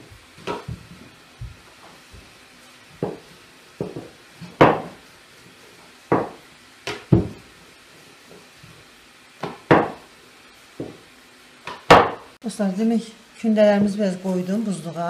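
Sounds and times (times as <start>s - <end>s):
rolling pin knocking on wooden board: 3.0s - 3.2s, 3.8s - 5.0s, 6.1s - 7.4s, 9.4s - 10.0s, 11.7s - 12.2s.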